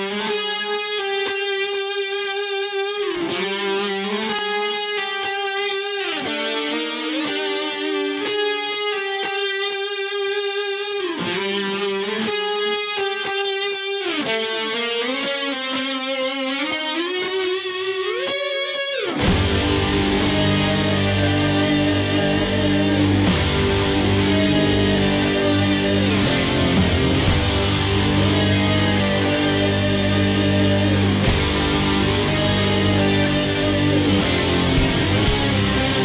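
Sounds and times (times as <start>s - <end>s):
distorted electric guitar music: 0.0s - 36.0s.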